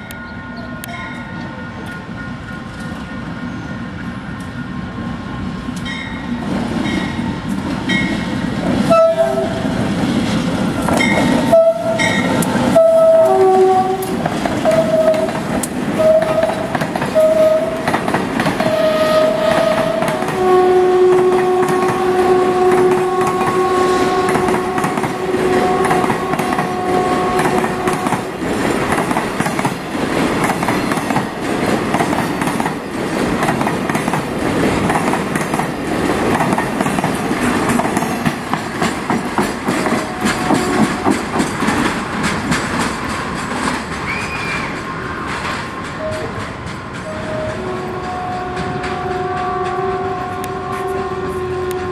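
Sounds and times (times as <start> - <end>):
train wheels clattering on rail joints: 5.7 - 51.9
locomotive horn blasts: 8.8 - 9.7, 11.4 - 15.4, 16.0 - 17.9, 18.6 - 28.2, 40.1 - 41.0, 47.0 - 51.9.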